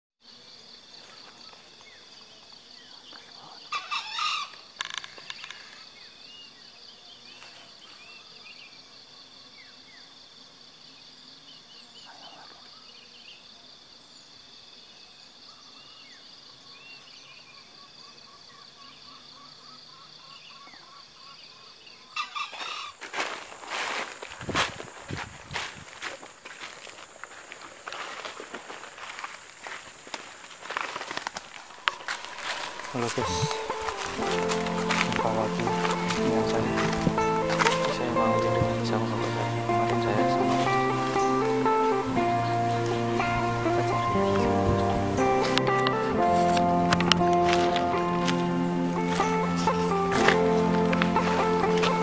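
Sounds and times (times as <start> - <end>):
junglefowl crowing: 3.7 - 5.1, 22.1 - 23.1, 31.7 - 52.0
footsteps through undergrowth: 7.3 - 8.2, 22.4 - 52.0
high-pitched drone: 32.4 - 52.0.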